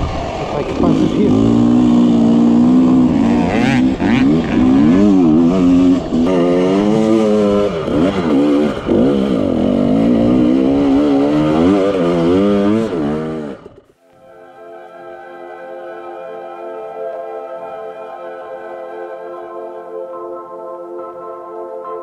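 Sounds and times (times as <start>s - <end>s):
dirt bike engine revving: 0.0s - 13.9s.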